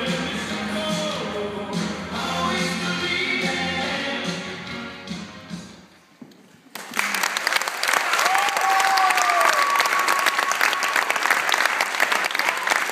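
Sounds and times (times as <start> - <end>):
audience applause: 6.7 - 12.9.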